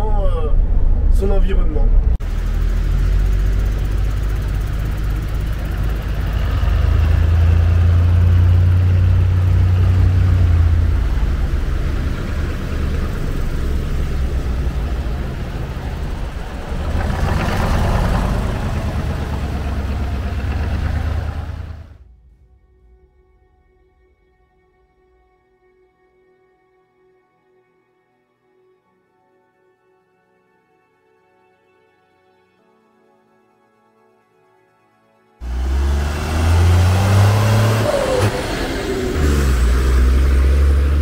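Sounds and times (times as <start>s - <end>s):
diesel truck engine droning: 0.0s - 22.0s, 35.4s - 41.0s.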